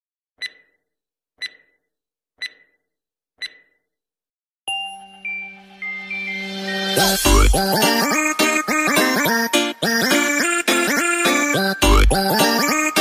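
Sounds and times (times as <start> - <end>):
short electronic beeps: 0.4 - 0.8, 1.4 - 1.8, 2.4 - 2.8, 3.4 - 3.7, 4.7 - 7.5
electronic intro sting: 5.0 - 7.7.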